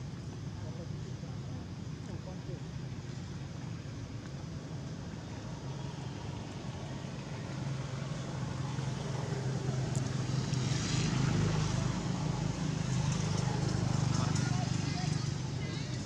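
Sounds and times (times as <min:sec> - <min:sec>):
low engine hum: 0:00.0 - 0:16.0.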